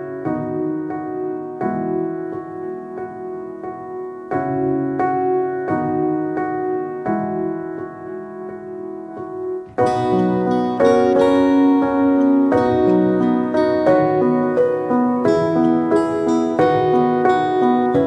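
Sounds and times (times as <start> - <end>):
piano playing slow chords: 0.0 - 18.0.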